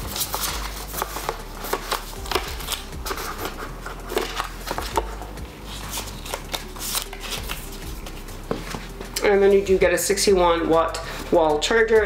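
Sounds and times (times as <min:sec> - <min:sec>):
paper and card rustling: 0:00.0 - 0:09.2.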